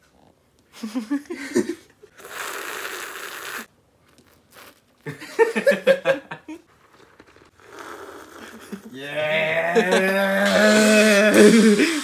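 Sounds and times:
person slurping coffee: 0:02.2 - 0:04.9, 0:06.9 - 0:09.0
throaty vocal sounds: 0:07.7 - 0:12.0.

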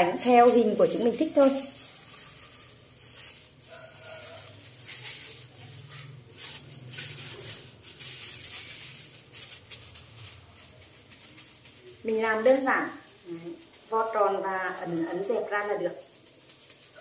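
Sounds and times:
plastic gloves crinkling: 0:00.0 - 0:17.0.

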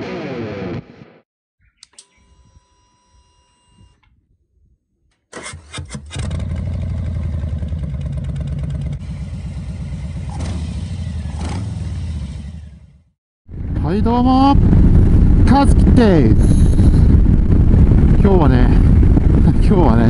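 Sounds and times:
motorcycle engine starting: 0:05.3 - 0:13.1
motorcycle engine idling: 0:06.3 - 0:13.0.

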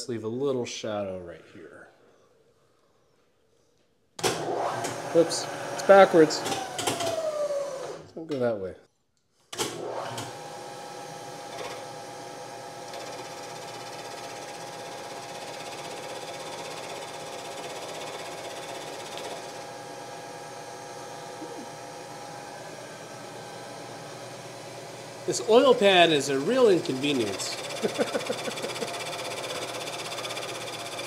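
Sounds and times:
milling machine humming: 0:10.0 - 0:31.0.

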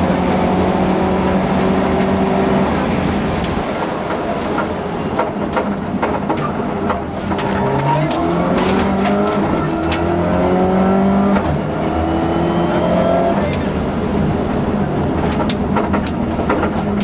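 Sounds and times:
car engine from inside cabin: 0:00.0 - 0:03.8, 0:07.0 - 0:17.0
clicks and knocks: 0:15.2 - 0:17.0.

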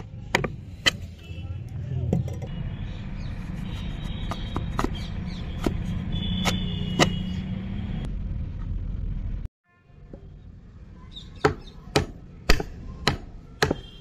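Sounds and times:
chisel ticking on wood: 0:11.4 - 0:13.8.

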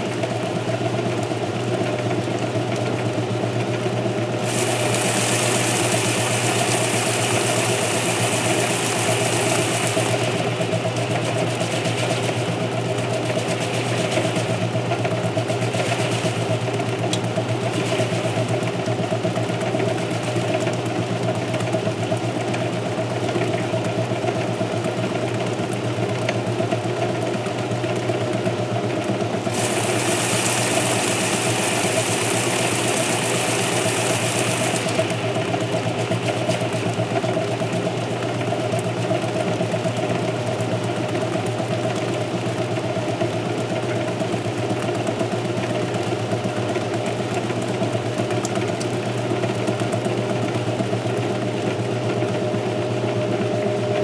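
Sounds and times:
washing machine agitating: 0:00.0 - 0:54.0
hiss: 0:04.5 - 0:10.1, 0:29.5 - 0:35.1.

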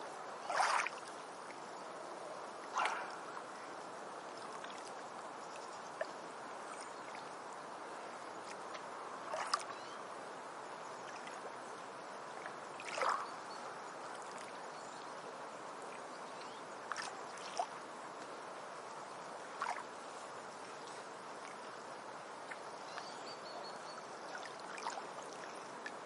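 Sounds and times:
small waves splashing: 0:00.0 - 0:26.0
surf washing: 0:00.4 - 0:01.2.

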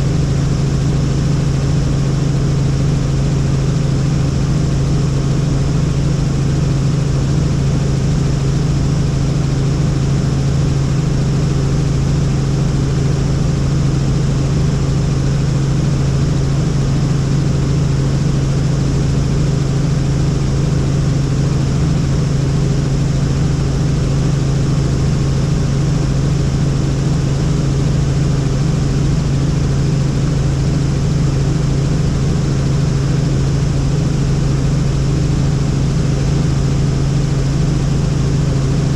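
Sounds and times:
helicopter engine and rotors: 0:00.0 - 0:38.9.

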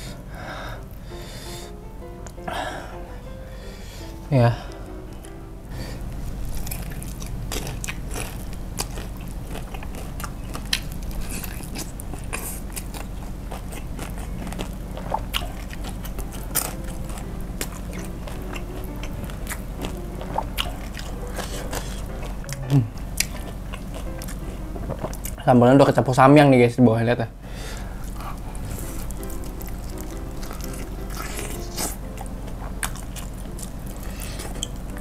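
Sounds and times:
crunching fried chicken: 0:06.2 - 0:25.4, 0:27.8 - 0:35.0
chewing: 0:06.4 - 0:25.4, 0:28.0 - 0:35.0.

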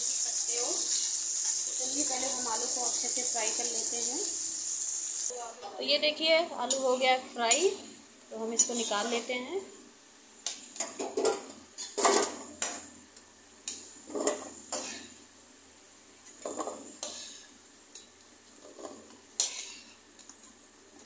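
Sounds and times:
oil sizzling: 0:00.0 - 0:05.4.

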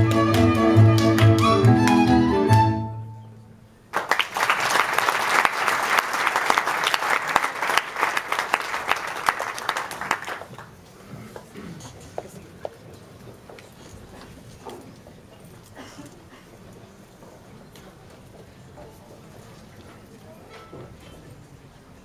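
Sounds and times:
audience applause: 0:03.9 - 0:10.8.

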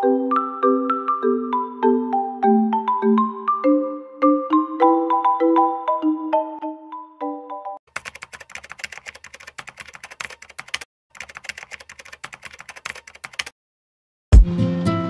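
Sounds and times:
mallet percussion tune: 0:00.0 - 0:07.8
rapid keyboard typing: 0:07.9 - 0:13.6.

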